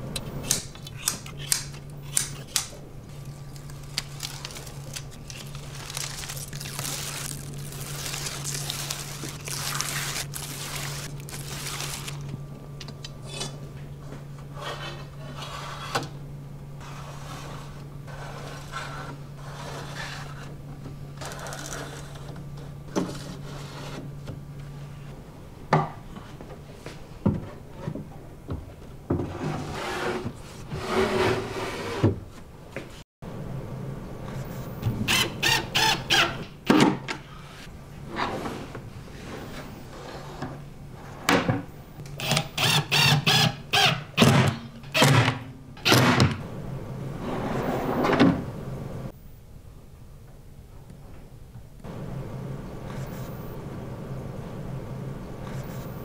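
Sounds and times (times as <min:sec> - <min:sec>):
drawers sliding on metal slides: 0:29.2 - 0:32.2, 0:38.1 - 0:41.6, 0:47.2 - 0:48.5.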